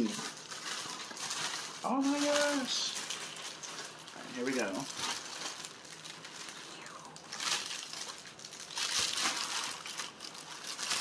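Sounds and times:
plastic wrapping crinkling: 0.0s - 11.0s.

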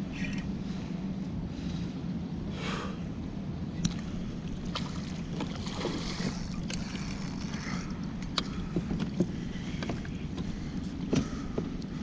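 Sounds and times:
water lapping at hull: 3.8s - 12.0s.

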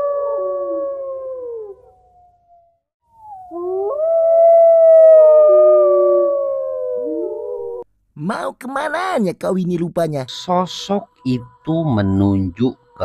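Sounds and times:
dogs howling: 3.5s - 7.8s.

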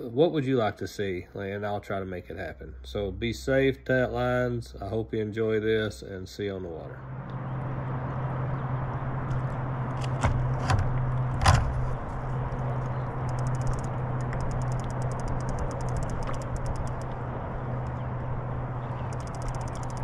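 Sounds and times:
low hum: 0.0s - 20.0s
water noise: 7.0s - 20.0s
fast faint ticking: 12.6s - 18.0s, 19.0s - 20.0s.

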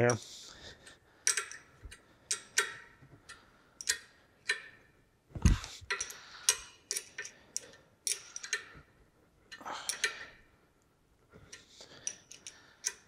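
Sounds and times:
wrench clinking on bolts: 1.2s - 5.0s, 5.9s - 8.9s, 9.5s - 10.4s, 11.5s - 13.0s.

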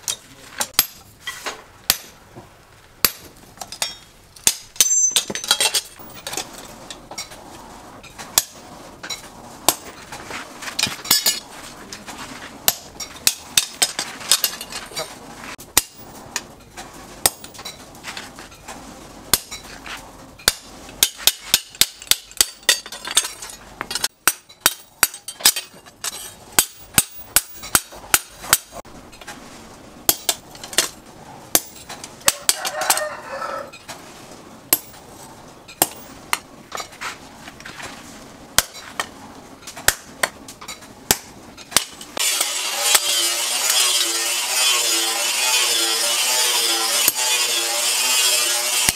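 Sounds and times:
ringing metallic clinks: 4.8s - 5.9s
hammer striking hot metal: 24.2s - 28.7s, 31.5s - 32.6s, 35.7s - 36.4s, 41.1s - 48.9s
rooster crowing: 32.2s - 33.8s.

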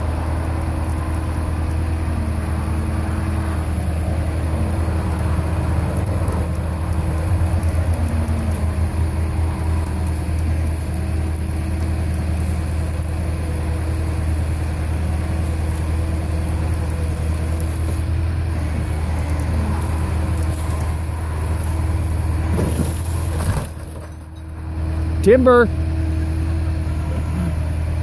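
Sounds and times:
truck engine idling: 0.0s - 28.0s.

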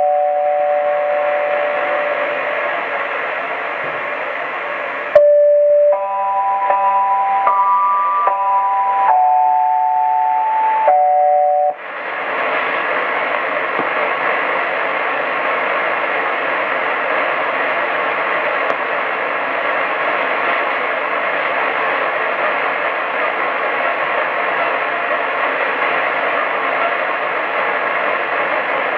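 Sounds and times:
radio static: 0.0s - 5.2s.

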